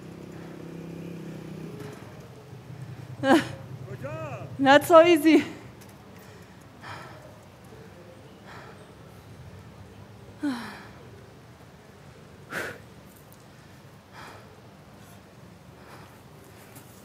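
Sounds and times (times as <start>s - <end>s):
woman moaning: 3.2s - 3.6s, 10.4s - 10.9s
woman breathing hard: 6.1s - 9.3s, 10.4s - 11.2s, 12.5s - 12.9s, 13.5s - 16.8s.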